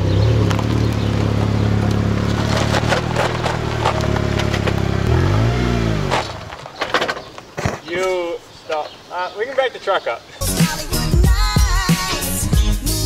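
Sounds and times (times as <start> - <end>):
pickup truck engine running: 0.0 - 6.1
clicks and scrapes: 2.3 - 4.9.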